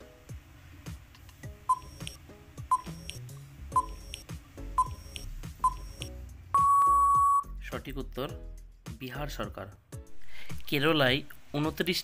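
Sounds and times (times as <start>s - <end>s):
background music: 0.0s - 12.0s
short electronic beeps: 1.7s - 3.2s, 3.8s - 4.2s, 4.8s - 7.5s
long electronic beep: 6.6s - 7.5s.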